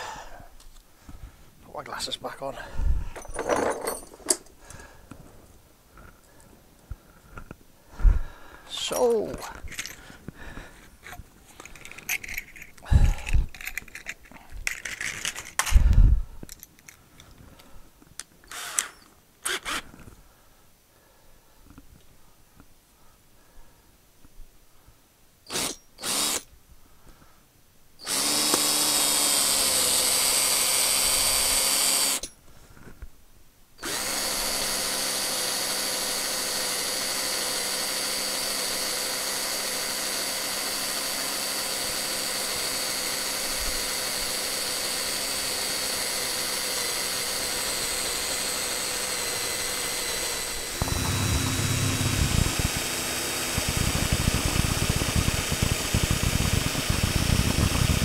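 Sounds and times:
cordless drill drilling into steel: 18.5 - 19.9, 25.5 - 26.5, 28.0 - 32.3, 33.8 - 58.0.

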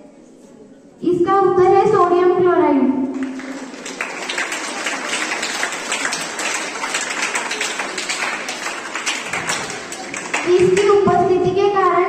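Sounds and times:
group clapping: 3.1 - 11.3.

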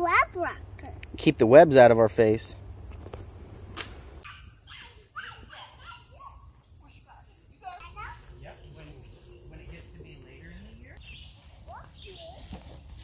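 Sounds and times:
insects singing: 0.0 - 11.2
sharp click: 3.7 - 4.0.

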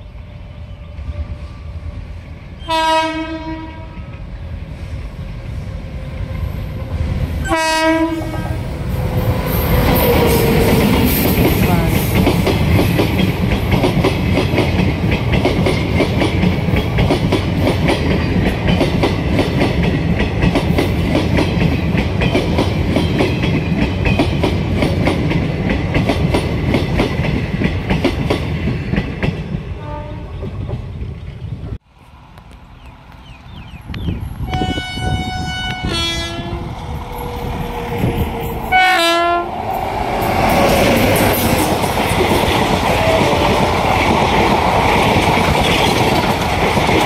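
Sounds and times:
train rumbling past: 0.0 - 47.0
train horn blast: 2.6 - 4.2, 7.4 - 8.7, 29.8 - 30.4, 34.4 - 36.7, 38.1 - 39.5
wheels clacking over rail joints: 39.7 - 47.0.

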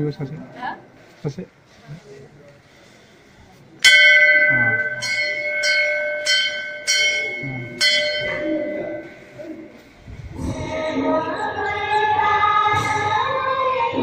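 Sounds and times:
metal temple bells ringing: 3.8 - 9.8.

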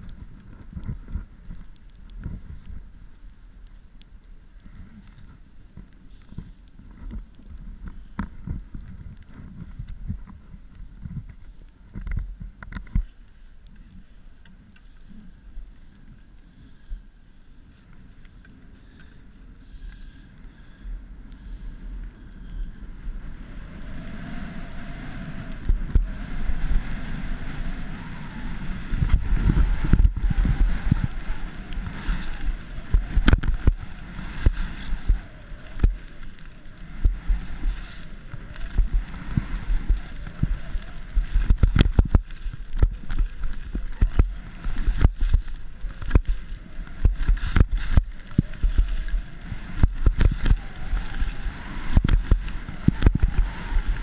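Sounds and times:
wind on microphone: 0.0 - 3.5, 4.6 - 13.2, 18.9 - 54.0
skis scraping over snow: 21.4 - 54.0.

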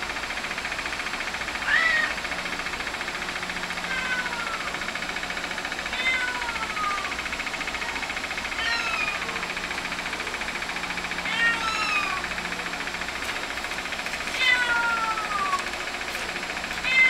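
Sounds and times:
steady buzzing hum: 0.0 - 17.0
kittens mewing: 1.6 - 2.3, 3.7 - 4.9, 5.8 - 10.5, 11.1 - 12.5, 14.3 - 15.8, 16.8 - 17.0.

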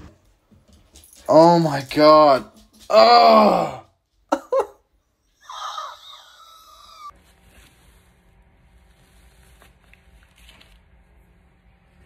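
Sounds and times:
faint room hum: 0.0 - 12.0
man grunting in pain: 2.9 - 4.0.

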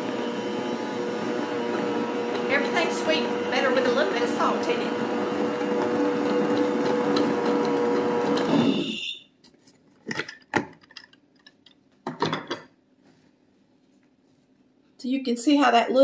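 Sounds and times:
stand mixer humming: 0.0 - 9.0.

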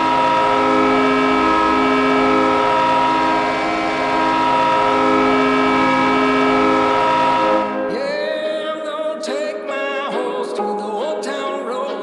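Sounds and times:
goal horn blaring: 0.0 - 8.2
music: 5.0 - 12.0.

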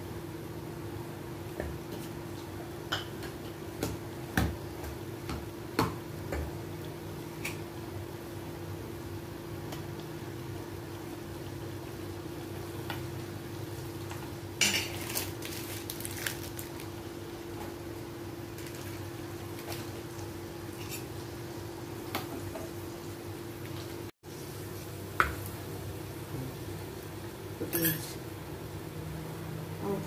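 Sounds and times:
nuts sizzling in hot fat: 7.1 - 29.0.

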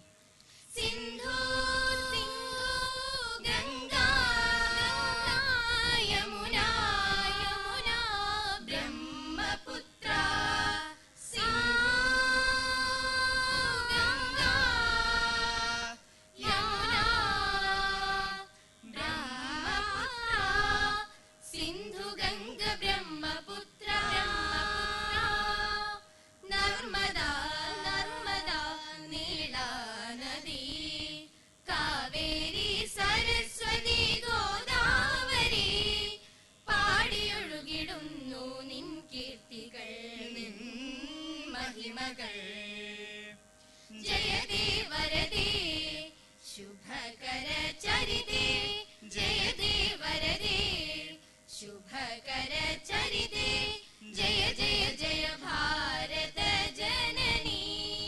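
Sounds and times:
group of students singing: 0.8 - 28.9, 44.0 - 46.1, 46.8 - 51.2, 51.9 - 58.0.

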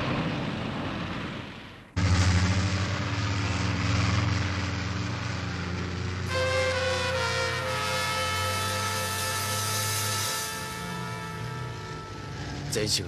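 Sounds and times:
truck engine droning: 0.0 - 13.0.

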